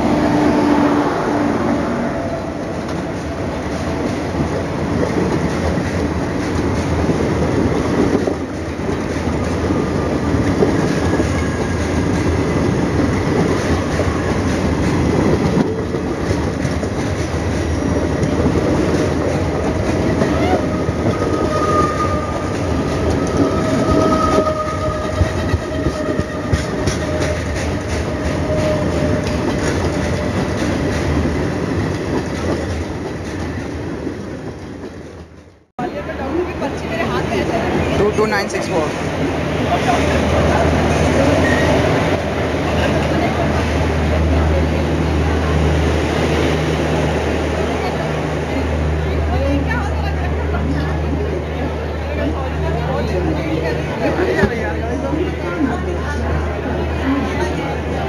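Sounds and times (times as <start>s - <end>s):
train passing with rumble: 0.0s - 58.0s
wheels clattering over rail joints: 21.7s - 35.6s.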